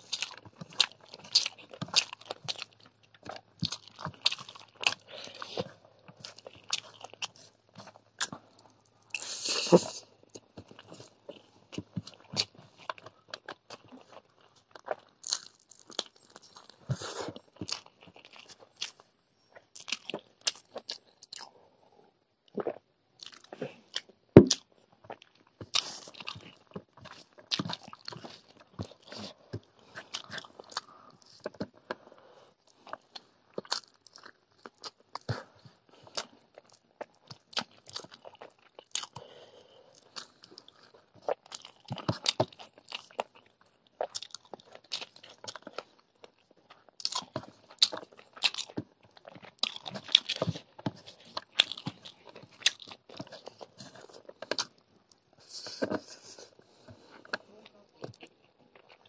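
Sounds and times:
person chewing: 0:00.0 - 0:21.6, 0:22.4 - 0:59.0.

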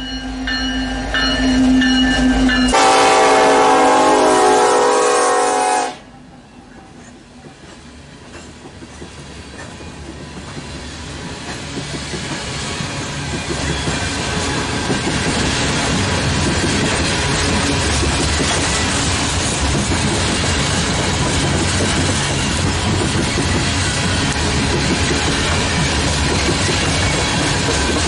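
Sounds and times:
locomotive horn: 0:02.7 - 0:06.2
train wheels rumbling on rails: 0:06.7 - 0:28.0.

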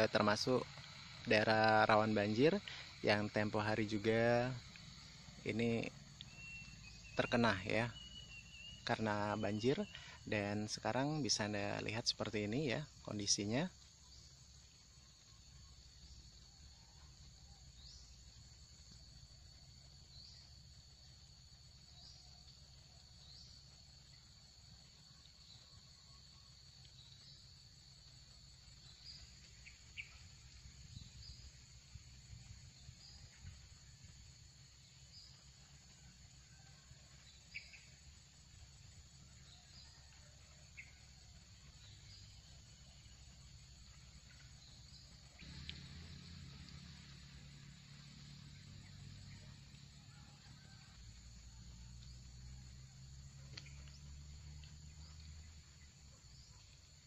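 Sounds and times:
high-pitched insect drone: 0:00.0 - 0:13.8.

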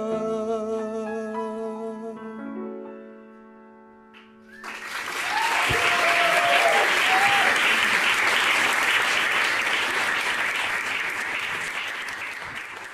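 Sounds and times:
audience applauding: 0:04.5 - 0:12.9
person cheering: 0:05.2 - 0:07.9.

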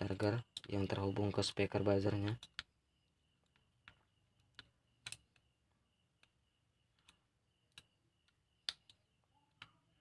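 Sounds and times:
faint clicks and taps: 0:02.2 - 0:10.0.

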